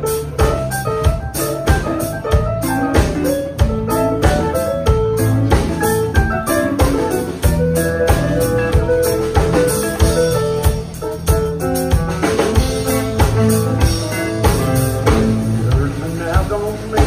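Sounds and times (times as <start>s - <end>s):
drum kit beat: 0.0s - 17.0s
electric guitar: 0.0s - 17.0s
keyboard: 0.0s - 17.0s.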